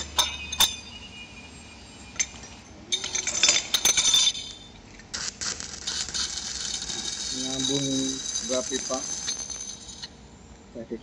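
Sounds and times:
steel pipe clinking: 0:00.0 - 0:04.8, 0:06.7 - 0:10.2
rapid crackling clicks: 0:05.1 - 0:10.2.

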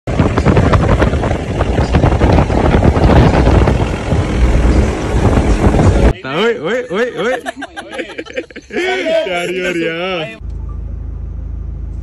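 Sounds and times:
jeep engine running loudly: 0:00.1 - 0:07.1.

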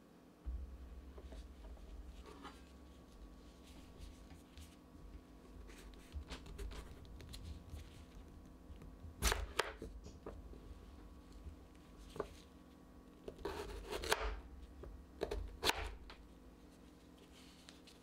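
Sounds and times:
low steady hum: 0:00.0 - 0:18.0
knife cutting potato on board: 0:09.2 - 0:09.8, 0:13.3 - 0:14.4, 0:15.2 - 0:16.0.

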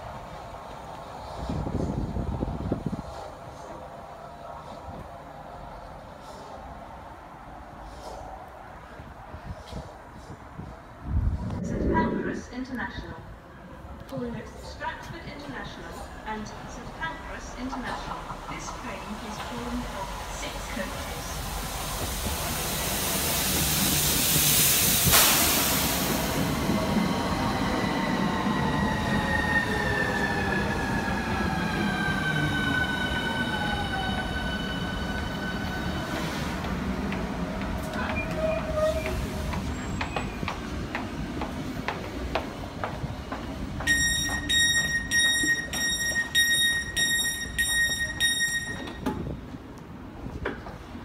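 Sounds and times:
train clicks: 0:17.7 - 0:19.8, 0:39.0 - 0:50.8
train braking: 0:37.7 - 0:40.8, 0:43.7 - 0:49.4
pulsing electronic door beep: 0:43.9 - 0:49.0.

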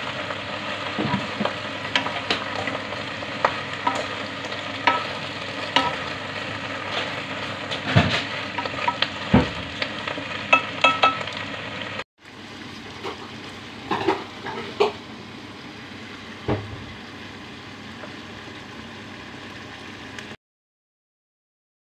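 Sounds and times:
food sizzling in a pan: 0:00.0 - 0:20.4
spatula and chopsticks scraping pan: 0:03.4 - 0:06.2.

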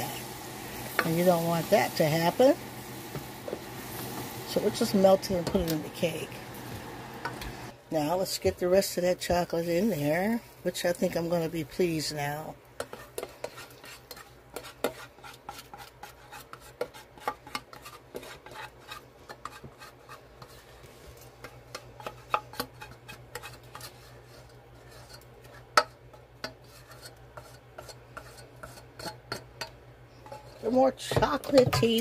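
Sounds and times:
spatula scraping a bowl: 0:12.8 - 0:32.0.

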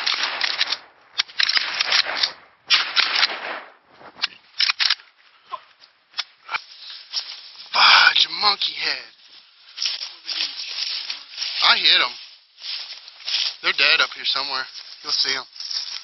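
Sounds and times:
branches scraping against clothing: 0:06.2 - 0:16.0.

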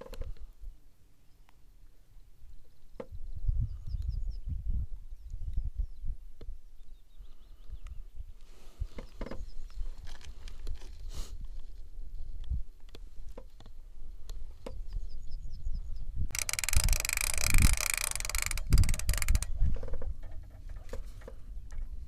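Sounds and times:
fishing reel whirring: 0:16.3 - 0:20.6
rod knocks and thumps: 0:16.4 - 0:21.9.

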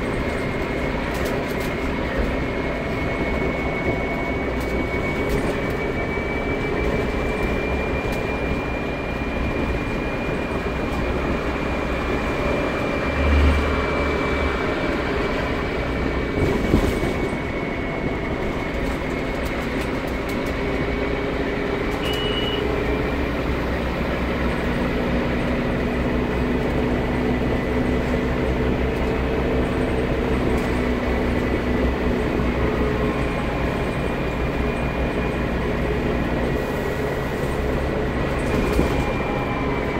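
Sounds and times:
bus engine and road noise: 0:00.0 - 0:39.9
constant high whine: 0:00.0 - 0:39.9
short high beep: 0:22.0 - 0:22.8.

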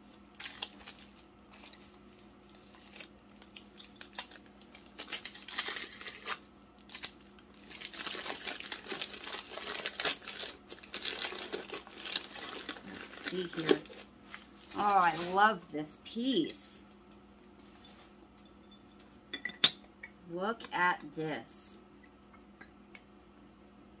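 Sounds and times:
packing paper crinkling: 0:00.0 - 0:15.4
tape being peeled: 0:00.3 - 0:15.4.

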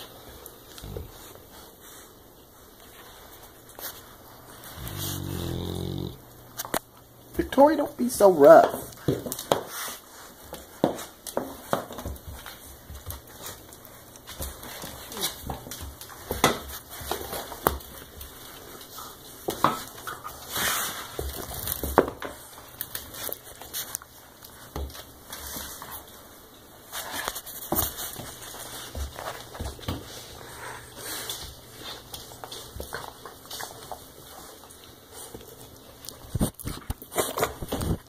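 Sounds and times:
paws scuffling on wooden floor: 0:00.0 - 0:38.0
dog noises: 0:03.8 - 0:06.7.

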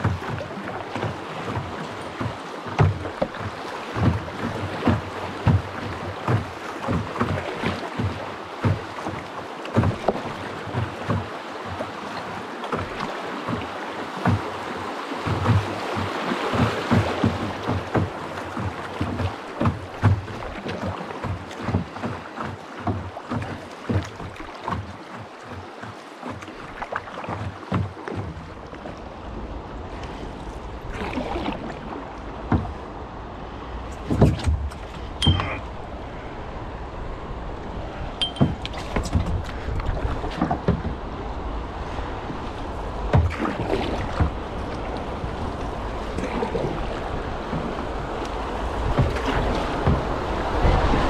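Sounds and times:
water washing: 0:00.0 - 0:36.2, 0:37.7 - 0:51.0
paddle strokes knocking and splashing: 0:00.0 - 0:36.4, 0:37.0 - 0:51.0.

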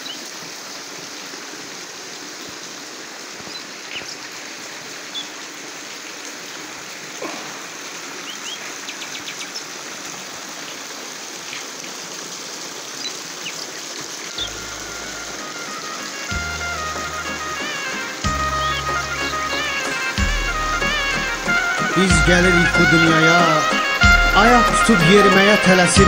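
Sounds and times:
waterfall splashing over rocks: 0:00.0 - 0:26.0
music: 0:14.3 - 0:26.0.

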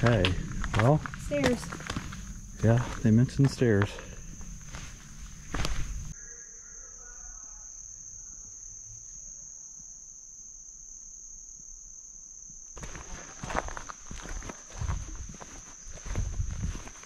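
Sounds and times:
footsteps on dirt trail: 0:00.0 - 0:06.1, 0:12.8 - 0:17.0
insects chorus: 0:00.0 - 0:17.0.

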